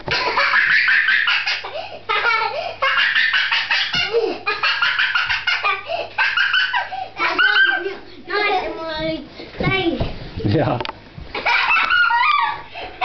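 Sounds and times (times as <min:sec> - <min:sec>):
children giggling: 0:00.0 - 0:08.0, 0:11.3 - 0:13.0.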